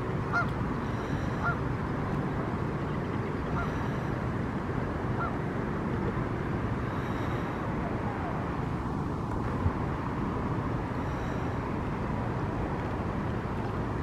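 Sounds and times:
low background rumble: 0.0s - 14.0s
geese honking: 0.3s - 1.6s.

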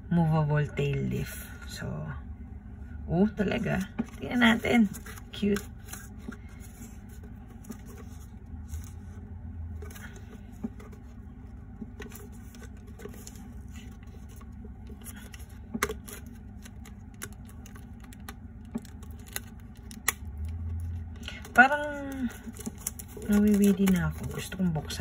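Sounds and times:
plastic wrap crinkling: 12.0s - 25.0s.

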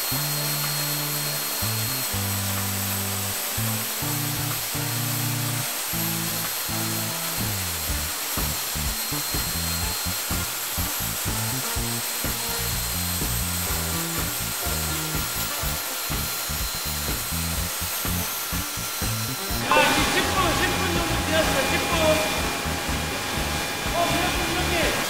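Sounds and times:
leaf blowers hissing: 0.0s - 25.0s
music with stepping bass line: 0.0s - 25.0s.

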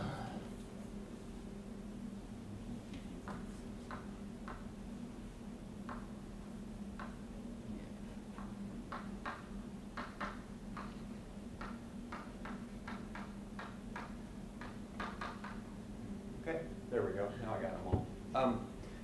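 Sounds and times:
low room hum: 0.0s - 19.0s
chalk tapping on a board: 3.2s - 4.6s, 11.6s - 15.6s.

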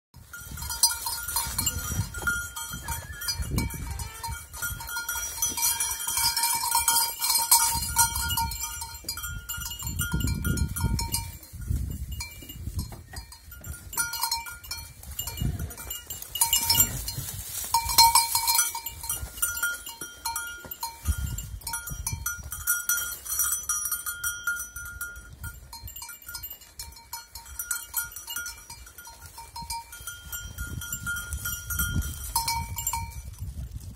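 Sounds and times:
small goat bells clinking: 0.2s - 33.9s
leaves and twigs rustling: 11.2s - 21.7s, 26.1s - 33.9s.

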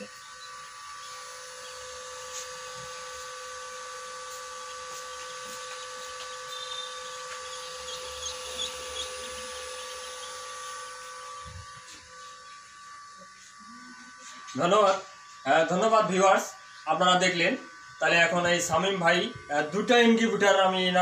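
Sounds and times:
steady electrical hum: 0.0s - 21.0s
ducklings scratching on tray: 4.3s - 10.2s
faint high chirps: 4.6s - 10.7s.

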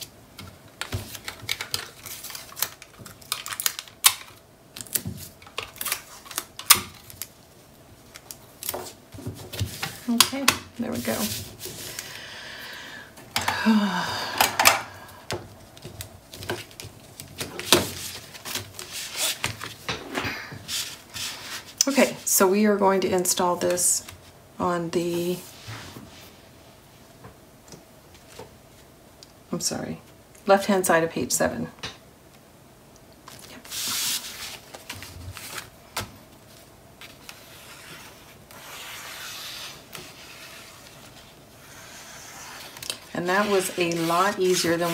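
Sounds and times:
paper rustling and slapping: 33.3s - 41.3s.

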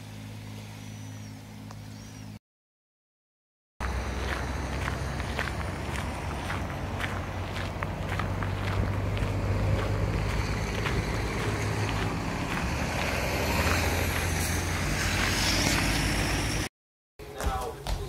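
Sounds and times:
road traffic engine hum: 0.0s - 2.4s, 3.8s - 16.7s
tyre and road noise: 3.8s - 16.7s
vehicle passing: 3.8s - 16.7s.

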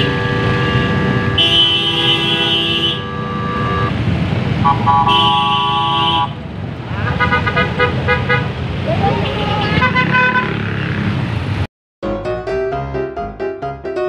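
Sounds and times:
vehicle horns honking: 0.0s - 3.9s, 4.6s - 8.6s, 9.2s - 10.6s
road and engine rumble: 0.0s - 11.7s.

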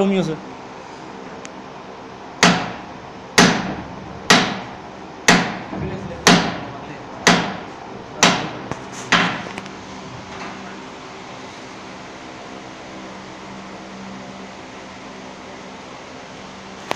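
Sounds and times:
hammer striking steel: 2.4s - 9.5s.

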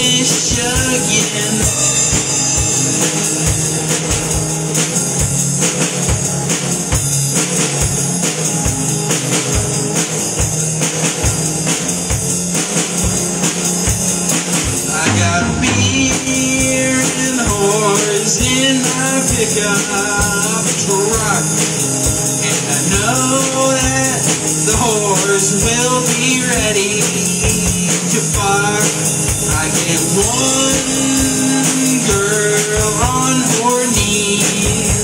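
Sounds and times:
cymbals: 0.0s - 6.0s
distorted electric guitar: 0.0s - 35.0s.

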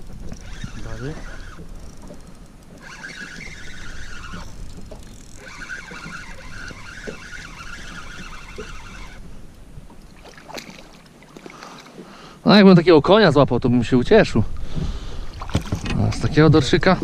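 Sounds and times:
fishing reel gears whirring: 0.0s - 12.0s.

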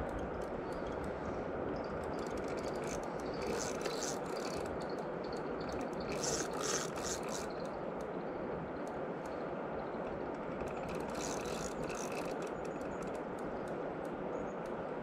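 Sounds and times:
fishing reel ratcheting: 1.8s - 7.8s, 10.4s - 13.7s.

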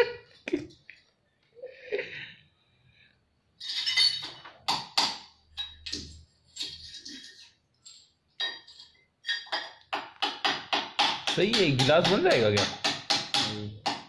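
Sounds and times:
glass bottles clinking: 3.6s - 4.9s, 8.4s - 9.9s.

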